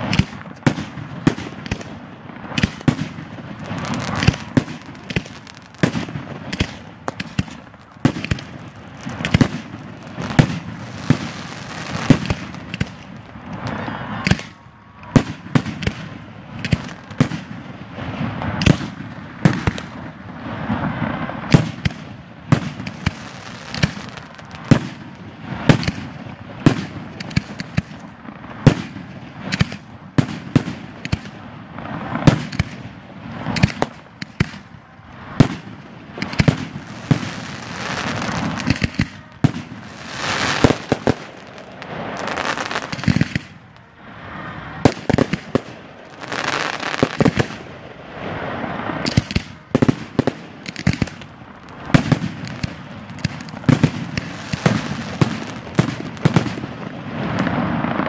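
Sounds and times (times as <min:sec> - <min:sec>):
firework shells bursting: 0:00.0 - 0:17.6, 0:21.4 - 0:43.9, 0:44.8 - 0:47.8, 0:48.9 - 0:56.8
small firework pops: 0:00.0 - 0:17.6, 0:18.2 - 0:20.1, 0:20.7 - 0:43.8, 0:44.8 - 0:47.7, 0:48.3 - 0:58.0
firework crackling: 0:00.0 - 0:58.0
loud firework bangs: 0:00.0 - 0:58.0.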